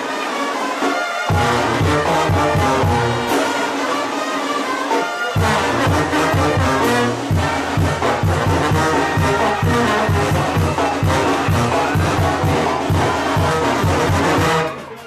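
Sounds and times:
brass band playing: 0:00.0 - 0:15.0
rhythmic bass pulse: 0:01.3 - 0:03.4, 0:05.4 - 0:14.6.

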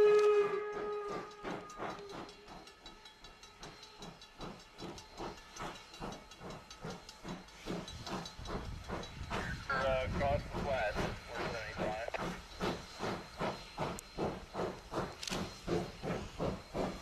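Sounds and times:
steam locomotive whistle: 0:00.0 - 0:02.5
locomotive exhaust chuffs: 0:00.0 - 0:17.0
hiss of steam: 0:00.3 - 0:17.0.

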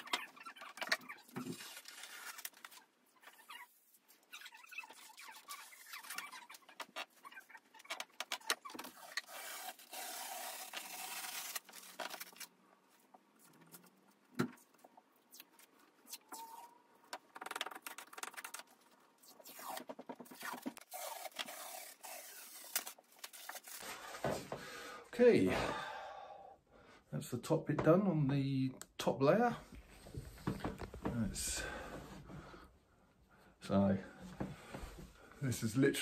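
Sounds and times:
wallpaper tearing: 0:00.0 - 0:12.5, 0:17.4 - 0:24.2
scraper scraping a wall: 0:08.6 - 0:12.0, 0:19.2 - 0:24.2.

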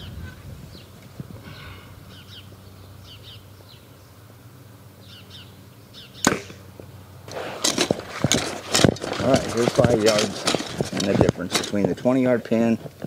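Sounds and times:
arrow striking target: 0:06.2 - 0:06.6
bow string snap: 0:06.2 - 0:06.6.

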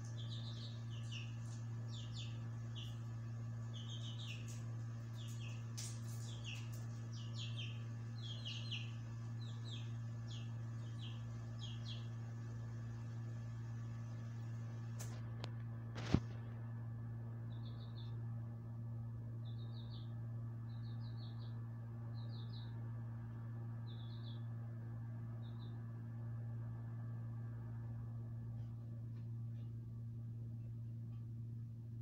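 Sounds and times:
small birds chirping: 0:00.0 - 0:14.6, 0:17.4 - 0:18.3, 0:19.3 - 0:24.6, 0:25.3 - 0:25.8
low electrical hum: 0:00.0 - 0:32.0.

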